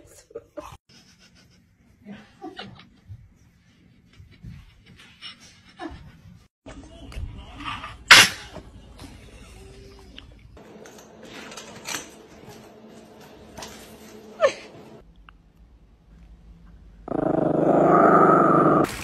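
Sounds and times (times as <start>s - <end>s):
small dog growling: 17.1s - 18.9s.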